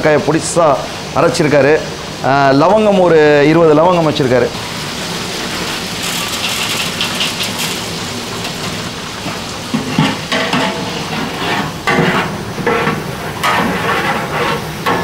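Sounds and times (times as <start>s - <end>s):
spices sizzling in hot oil: 4.5s - 15.0s
ladle scraping metal pot: 6.0s - 15.0s.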